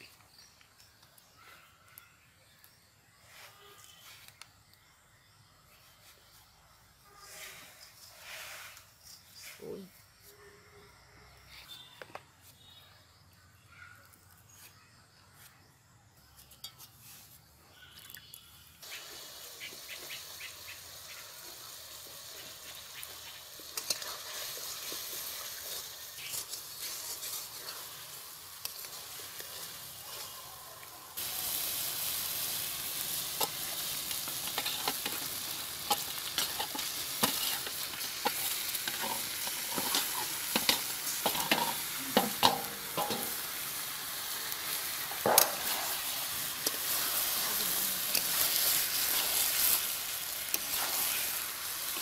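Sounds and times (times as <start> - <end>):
food sizzling in oil: 17.8 - 52.0
metal spatula scraping a pan: 23.7 - 30.4, 33.3 - 43.4, 44.9 - 47.4, 48.0 - 52.0.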